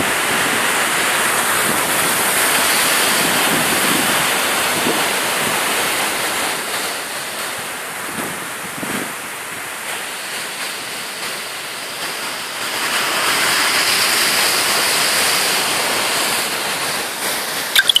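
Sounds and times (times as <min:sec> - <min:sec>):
surf washing over rocks: 0:00.0 - 0:18.0
sharp clicks: 0:17.8 - 0:18.0.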